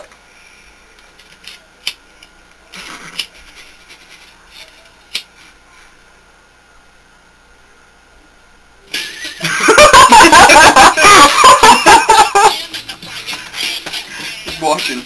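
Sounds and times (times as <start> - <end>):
stifled laugh: 9.0 - 12.6.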